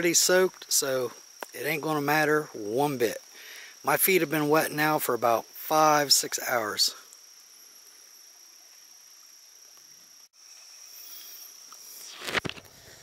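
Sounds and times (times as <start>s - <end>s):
creek water flowing: 0.0s - 10.3s
insects chirring: 0.0s - 13.0s.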